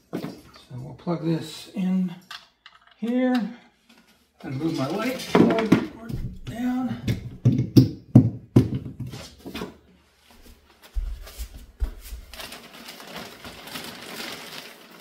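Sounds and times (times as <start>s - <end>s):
plastic packaging rustling: 10.7s - 15.0s.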